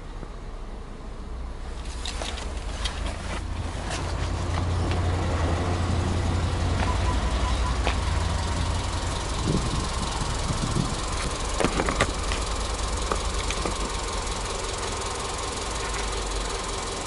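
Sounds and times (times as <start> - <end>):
car engine idling: 1.5 - 17.0.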